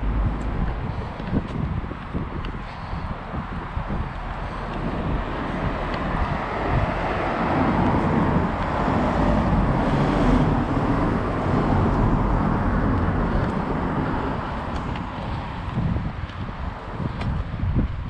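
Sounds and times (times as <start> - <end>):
car driving past: 5.4 - 15.0.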